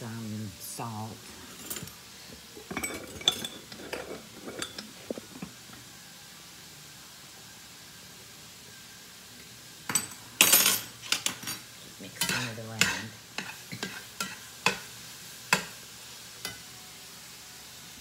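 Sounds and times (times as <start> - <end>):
vegetables sizzling faintly: 0.0 - 18.0
metal utensil scraping a pan: 1.3 - 5.6, 12.2 - 14.9.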